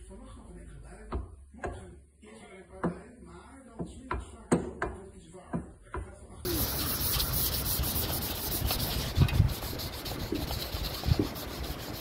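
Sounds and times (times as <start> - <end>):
sanding scrubbing: 6.5 - 12.0.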